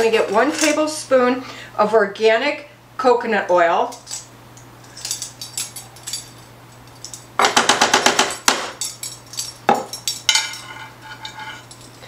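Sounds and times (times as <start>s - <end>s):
metal spoon scraping glass jar: 10.5s - 12.0s.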